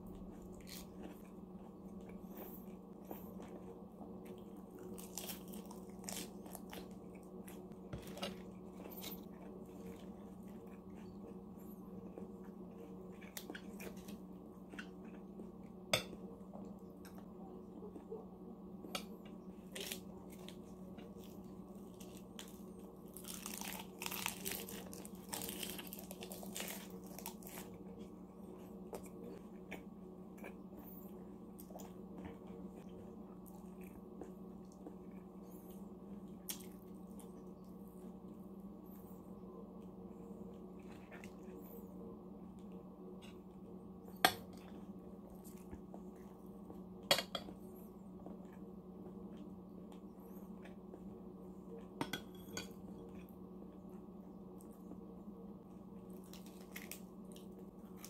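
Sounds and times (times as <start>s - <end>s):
steady low hum: 0.0s - 58.0s
lettuce crunching: 0.1s - 11.4s, 19.0s - 30.6s, 56.1s - 58.0s.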